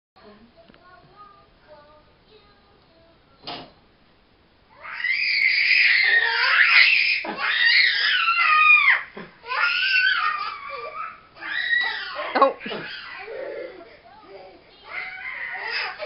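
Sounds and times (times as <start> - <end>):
toddlers screaming in play: 4.7 - 13.8, 14.8 - 16.0.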